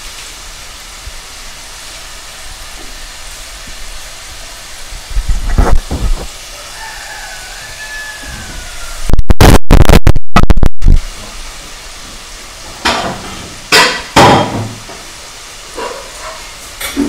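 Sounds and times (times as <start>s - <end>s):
dough sizzling in hot oil: 0.0s - 17.0s
loud distorted crackle: 5.0s - 6.4s, 9.0s - 11.2s.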